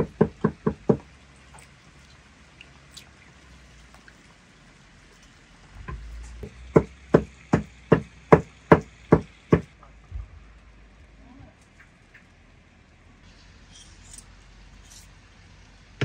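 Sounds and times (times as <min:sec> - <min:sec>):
hands working berries in water: 0:00.0 - 0:06.9.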